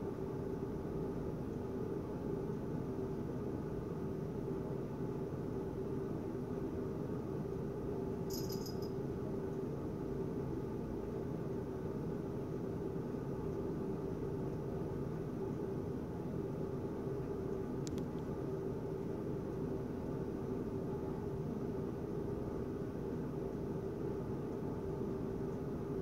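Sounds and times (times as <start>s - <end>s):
low background hum: 0.0s - 26.0s
faint steady tone: 8.1s - 9.2s.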